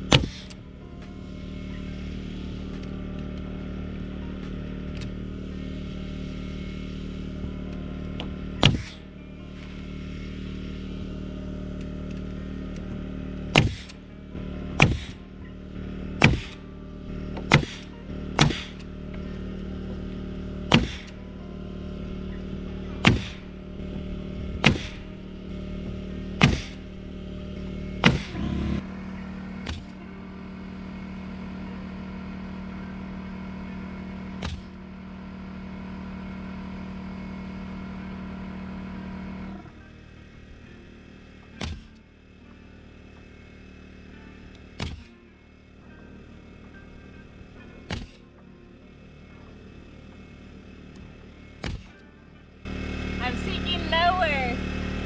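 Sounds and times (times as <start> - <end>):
pneumatic nailer firing: 0.0 - 0.6, 8.2 - 9.1, 13.4 - 14.0, 14.8 - 15.2, 16.2 - 16.7, 17.3 - 18.9, 20.6 - 21.2, 23.0 - 25.2, 26.3 - 27.0, 28.0 - 28.8, 29.6 - 30.0, 34.3 - 34.8, 41.5 - 42.0, 44.8 - 45.1, 47.9 - 48.2, 51.6 - 52.0
air compressor humming: 0.0 - 55.0.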